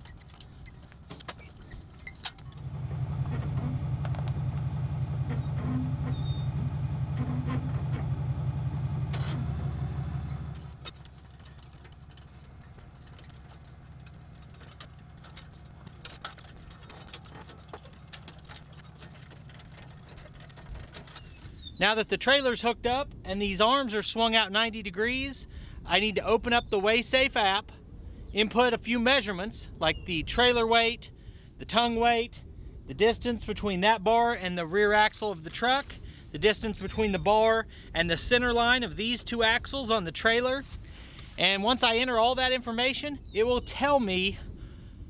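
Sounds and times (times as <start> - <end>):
pickup truck engine running: 2.4 - 20.4
faint clicks and knocks: 10.5 - 21.5.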